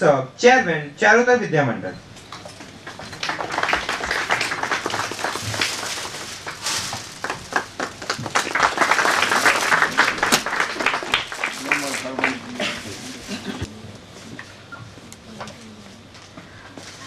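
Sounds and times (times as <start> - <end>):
audience applauding: 2.8 - 12.9.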